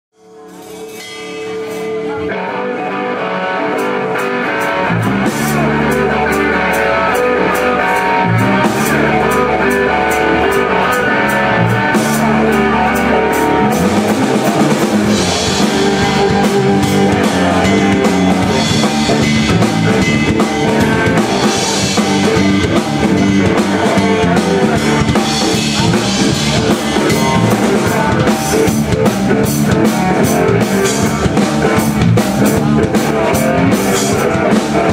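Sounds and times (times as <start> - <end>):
blues-rock band playing: 0.2 - 34.9
cymbals: 0.4 - 2.2.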